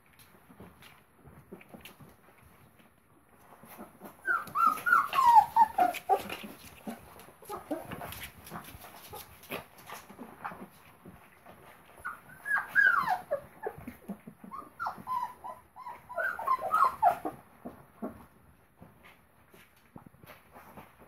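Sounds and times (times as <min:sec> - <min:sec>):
puppies whimpering and squeaking: 0:03.3 - 0:18.3.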